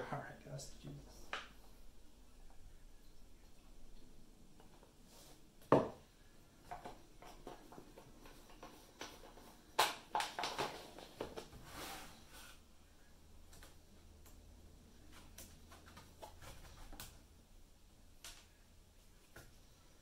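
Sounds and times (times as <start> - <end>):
plastic jug knocks: 5.7 - 6.0
thump on table: 5.7 - 6.0.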